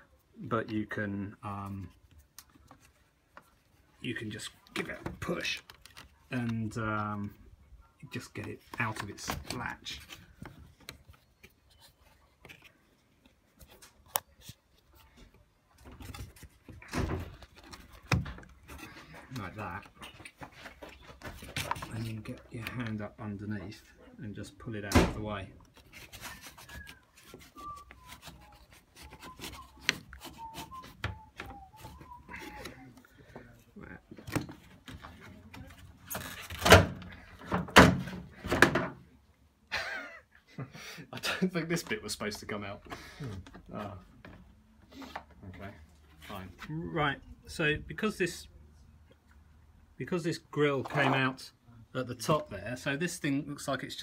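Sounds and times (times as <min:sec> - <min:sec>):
plastic scraping and rubbing: 0:08.1 - 0:23.1, 0:25.3 - 0:38.9
plastic clunks and knocks: 0:16.7 - 0:18.8, 0:36.5 - 0:39.0.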